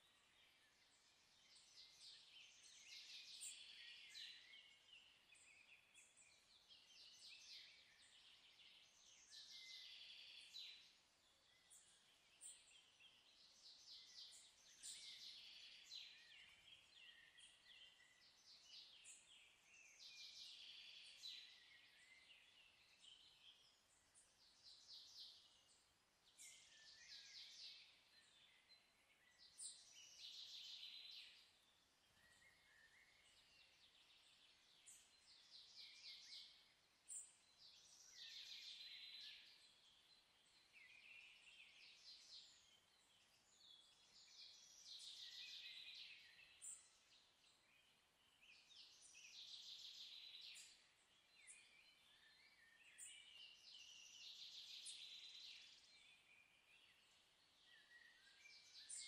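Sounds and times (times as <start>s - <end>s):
faint birdsong chirps and trills: 0.0s - 59.0s.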